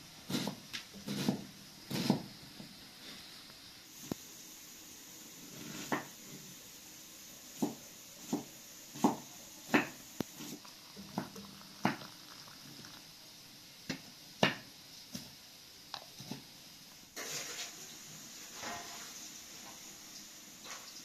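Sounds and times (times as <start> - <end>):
knife chopping on wooden board: 0.3 - 2.3, 7.6 - 10.6.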